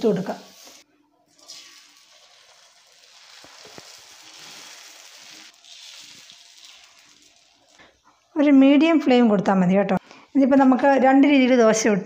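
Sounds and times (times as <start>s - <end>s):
batter sizzling on griddle: 0.1s - 8.0s.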